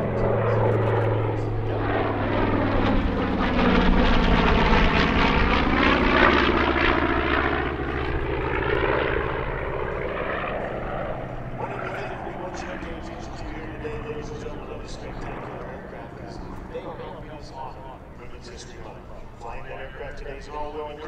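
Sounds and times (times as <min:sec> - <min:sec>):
piston aircraft engines droning: 0:00.0 - 0:21.0.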